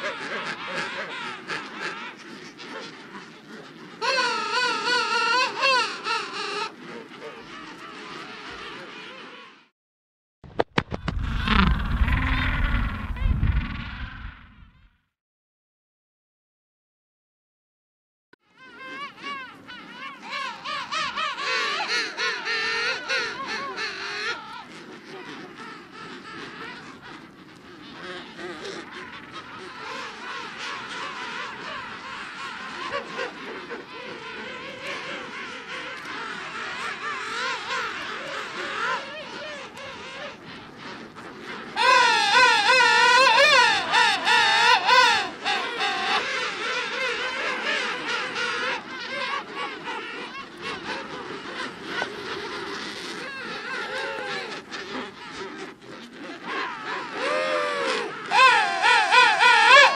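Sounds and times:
penguins calling: 0.0s - 9.5s, 18.7s - 59.9s
loud warbling penguin call: 10.8s - 14.8s, 18.6s - 59.9s
penguin calling loudly: 41.8s - 46.2s, 57.8s - 59.9s.

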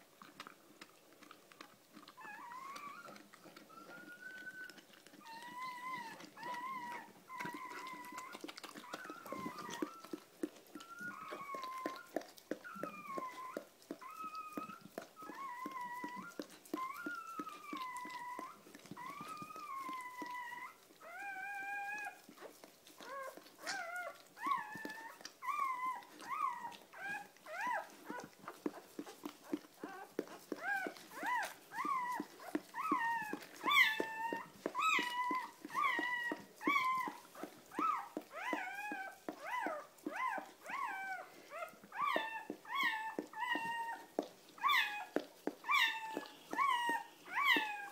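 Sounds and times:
faint clicks and rustling: 0.0s - 47.9s
puppy crying: 2.2s - 22.2s, 23.0s - 28.8s, 29.4s - 47.9s.

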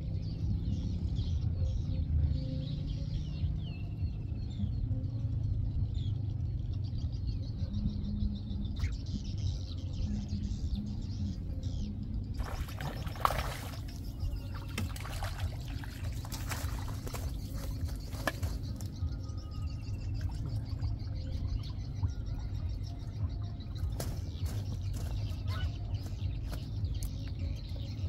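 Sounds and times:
low steady rumble: 0.0s - 28.0s
small birds chirping: 0.0s - 28.0s
fish splashing at surface: 12.4s - 14.0s.

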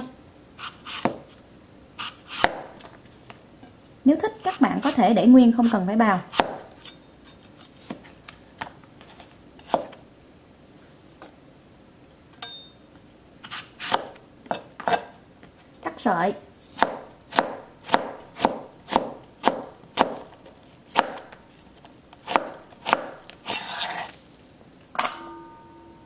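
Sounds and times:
knife cutting on cutting board: 0.6s - 1.2s, 2.0s - 2.6s, 22.3s - 24.2s.

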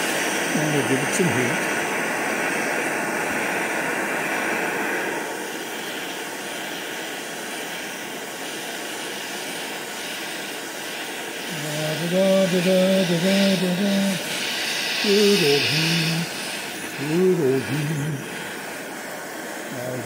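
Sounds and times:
gas torch hissing: 0.0s - 20.0s
man humming: 11.5s - 18.6s, 19.7s - 20.0s.

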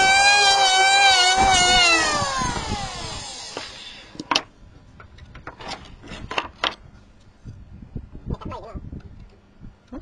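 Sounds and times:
electric planer spinning down: 0.0s - 4.1s.

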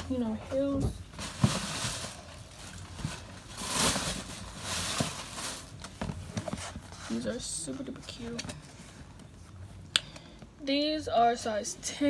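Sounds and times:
plastic bag rustling: 0.1s - 8.9s.

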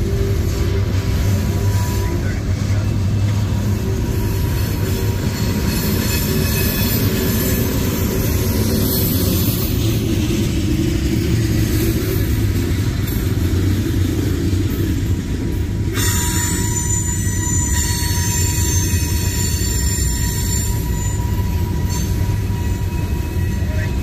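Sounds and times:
train wheels rumbling on rails: 0.0s - 24.0s
high-pitched wheel squeal: 0.1s - 9.7s, 16.0s - 24.0s.

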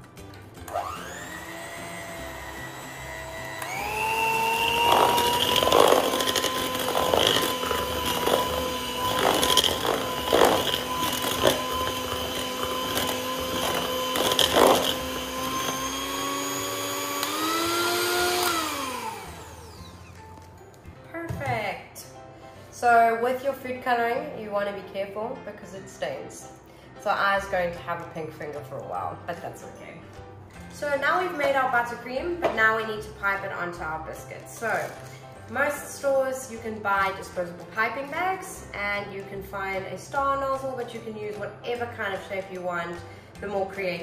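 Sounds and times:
electric mixer motor whine: 0.6s - 20.4s.

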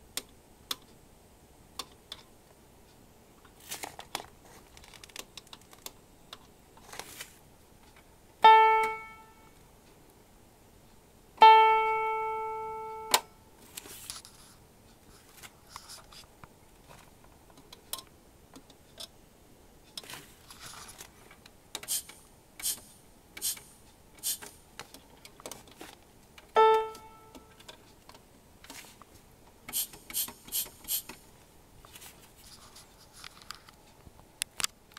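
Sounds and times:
buttons and knob clicking: 8.4s - 9.2s, 13.0s - 13.3s, 26.6s - 28.2s
sampled piano notes: 8.4s - 9.5s, 11.4s - 13.4s, 26.6s - 27.5s.

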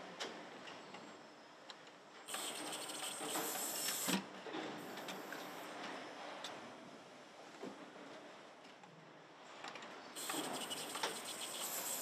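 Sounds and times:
low factory background: 0.0s - 12.0s
machine hiss with fast rattling: 2.3s - 4.2s, 10.2s - 12.0s.

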